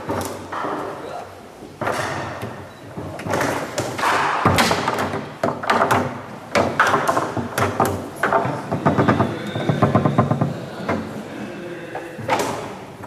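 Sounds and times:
foosball knocks and clacks: 0:01.8 - 0:11.1.

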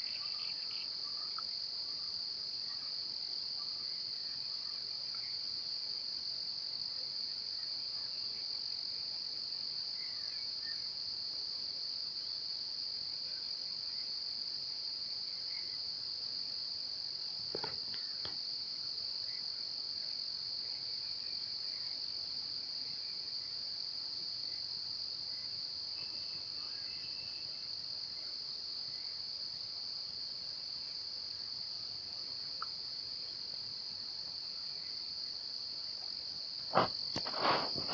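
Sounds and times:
brief knock: 0:17.6 - 0:18.4.

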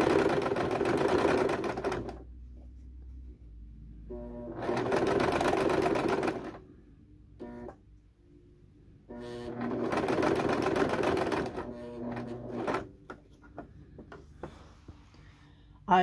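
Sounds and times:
sewing machine stitching: 0:00.0 - 0:02.3, 0:04.1 - 0:06.6, 0:09.1 - 0:13.0.

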